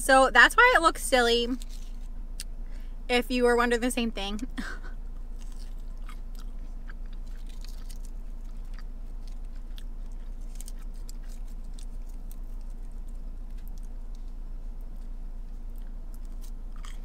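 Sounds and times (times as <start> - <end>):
steady low hum: 0.0 - 17.0
chewing crunchy food: 5.2 - 17.0.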